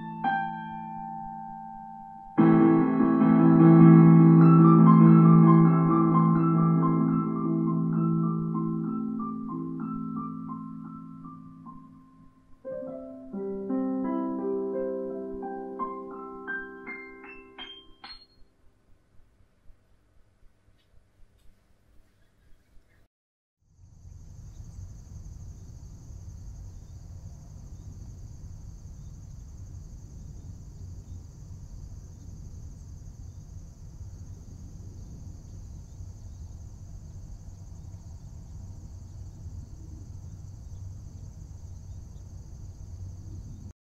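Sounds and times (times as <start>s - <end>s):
insects chirring: 23.7s - 43.7s.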